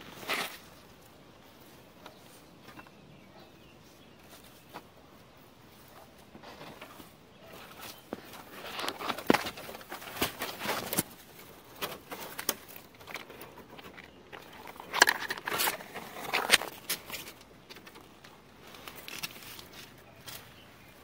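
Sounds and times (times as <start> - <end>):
leaves and vines rustling: 0.0 - 21.0
clicks and scrapes: 6.4 - 20.5.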